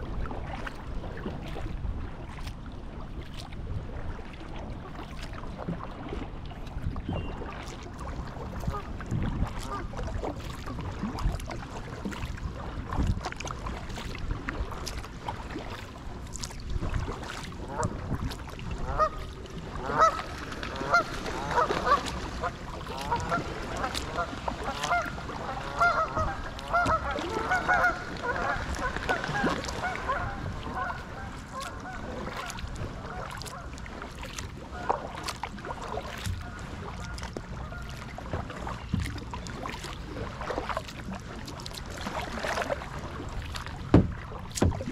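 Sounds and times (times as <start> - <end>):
kayak paddle splashes: 0.0 - 44.9
wind rumble on microphone: 0.0 - 44.9
geese honking: 19.8 - 20.2, 24.9 - 31.0.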